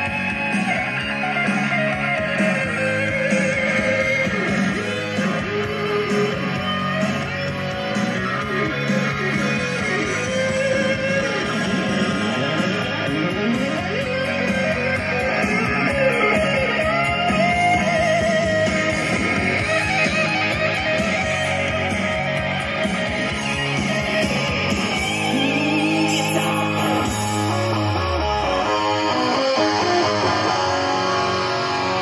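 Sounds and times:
rock music on radio: 0:00.0 - 0:32.0.

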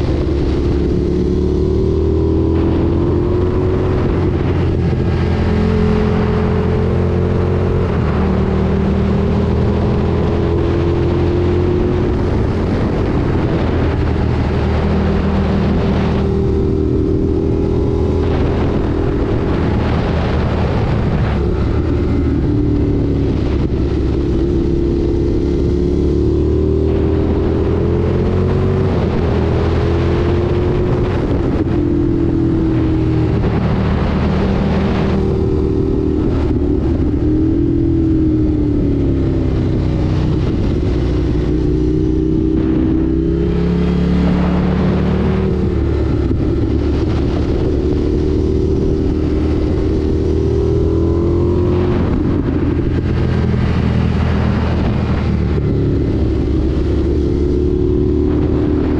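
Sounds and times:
motorcycle engine revving: 0:00.0 - 0:58.9.

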